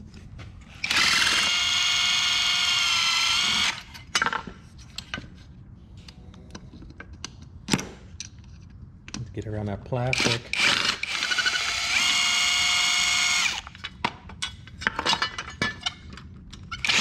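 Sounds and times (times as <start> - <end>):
cordless drill motor whine: 0.8 - 3.9, 10.2 - 13.8.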